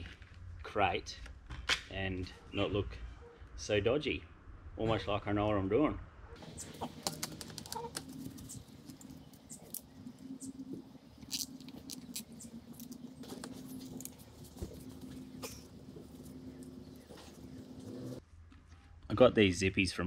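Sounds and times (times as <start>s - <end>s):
faint low hum: 6.3s - 19.0s
zip ties clicking and rattling: 11.2s - 14.2s.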